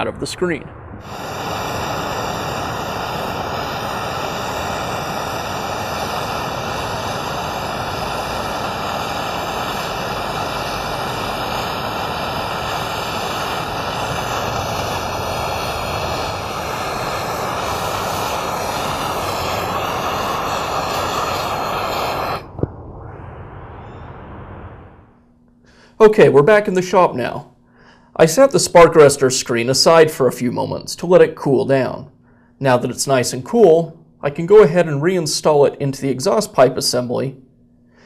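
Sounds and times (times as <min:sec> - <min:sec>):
blow torch flame hissing: 0:00.8 - 0:25.1.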